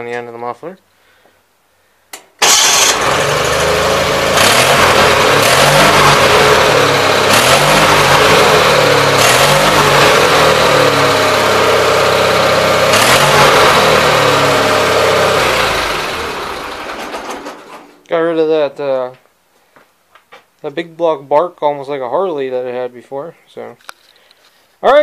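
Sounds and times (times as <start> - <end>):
tractor engine revving: 2.4 - 18.1.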